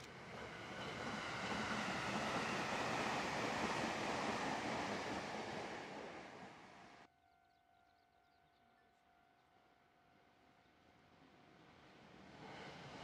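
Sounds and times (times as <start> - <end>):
train wheels rushing on rail: 0.0 - 7.1, 11.1 - 13.0.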